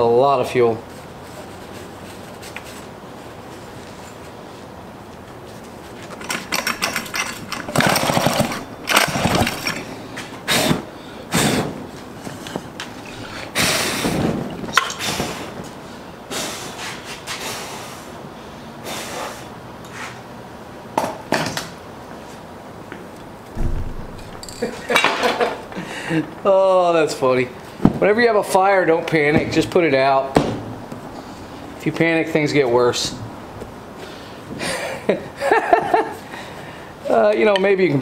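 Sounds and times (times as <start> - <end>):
chainsaw pull-start cranking: 6.2 - 9.9.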